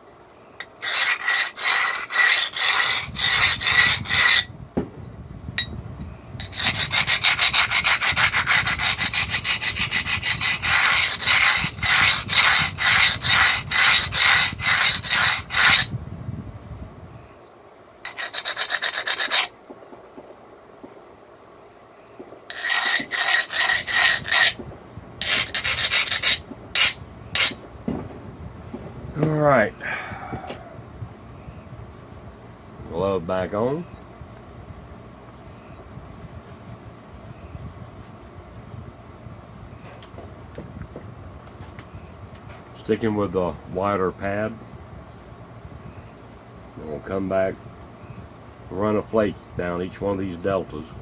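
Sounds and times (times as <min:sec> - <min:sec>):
abrader scraping stone edge: 0:00.6 - 0:04.5, 0:06.4 - 0:15.9, 0:18.0 - 0:19.6, 0:22.5 - 0:24.6, 0:25.2 - 0:27.6.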